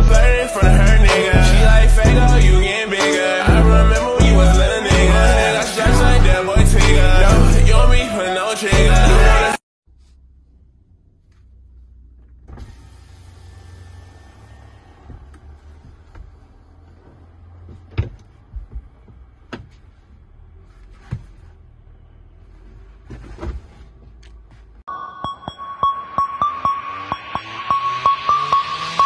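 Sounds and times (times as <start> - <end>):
low rumble in car cabin: 9.9 - 24.9
clicks and knocks of person shifting: 15.0 - 21.6, 22.5 - 24.9.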